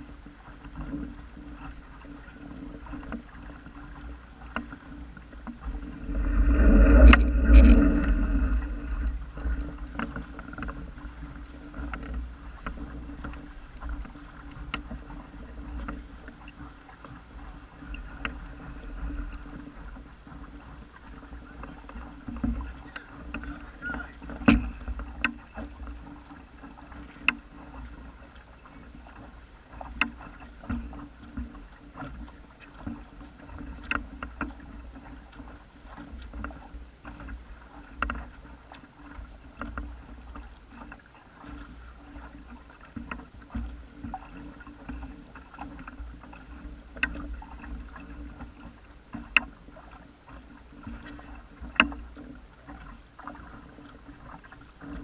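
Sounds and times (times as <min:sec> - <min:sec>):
waves slapping against hull: 0:00.0 - 0:55.0
low steady rumble: 0:04.1 - 0:14.2.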